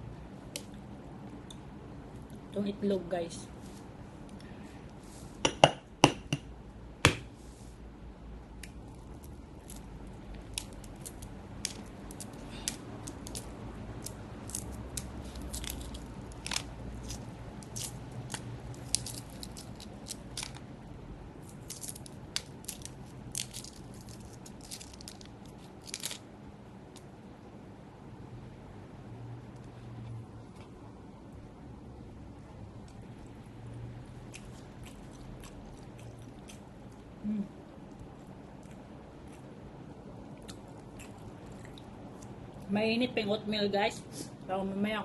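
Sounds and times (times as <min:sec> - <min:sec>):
eggshell crackling as peeled: 0:08.6 - 0:20.7, 0:21.4 - 0:26.3.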